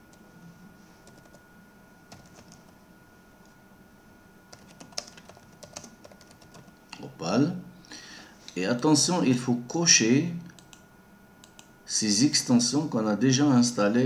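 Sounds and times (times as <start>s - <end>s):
keyboard typing: 1.0s - 1.4s, 2.1s - 2.8s, 4.5s - 6.7s.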